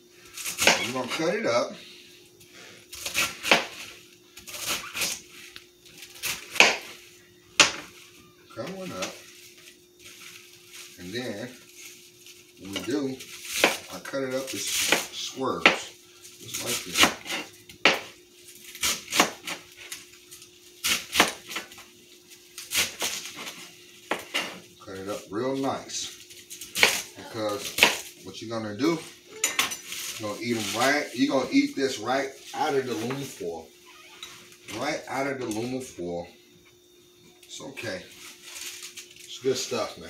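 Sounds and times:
knife chopping cabbage on board: 6.3s - 6.9s, 13.5s - 13.9s, 18.8s - 19.6s, 20.8s - 21.6s
knife chopping on cutting board: 6.5s - 6.9s.

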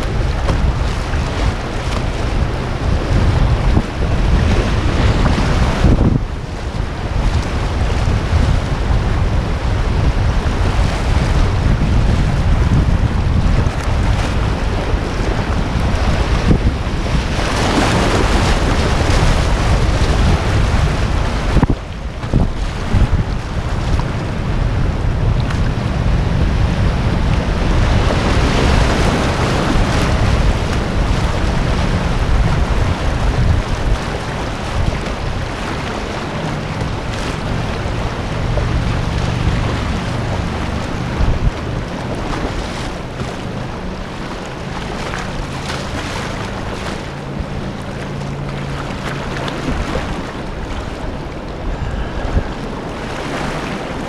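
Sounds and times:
river water rushing over rapids: 0.0s - 54.0s
wind on microphone: 0.0s - 54.0s
short splashes: 25.2s - 54.0s.

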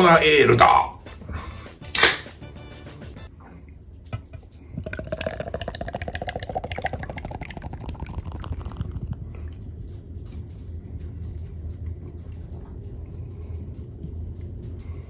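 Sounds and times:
beer pouring into glass: 4.2s - 9.4s.

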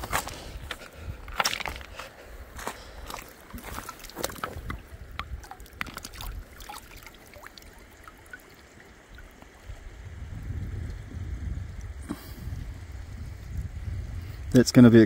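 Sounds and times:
river water trickling over stones: 0.0s - 15.0s
stones clicking and knocking: 0.1s - 2.1s, 3.3s - 6.4s.

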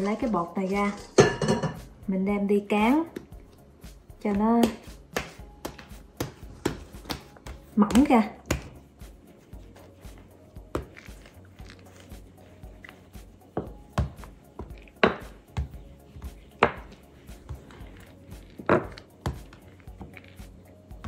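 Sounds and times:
rolling pin thudding on dough: 4.3s - 8.9s, 12.9s - 20.2s.

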